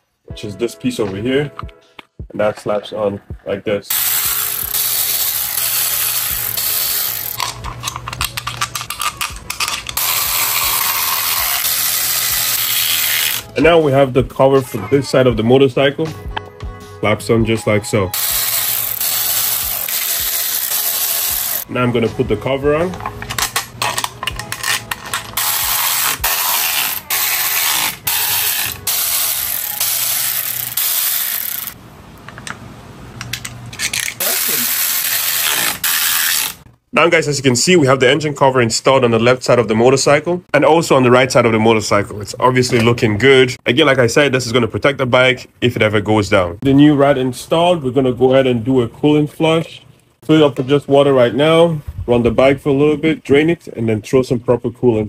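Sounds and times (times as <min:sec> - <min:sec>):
ratchet wrench clicking: 0:03.9 - 0:13.5, 0:18.2 - 0:21.7, 0:23.3 - 0:31.8, 0:33.8 - 0:36.6.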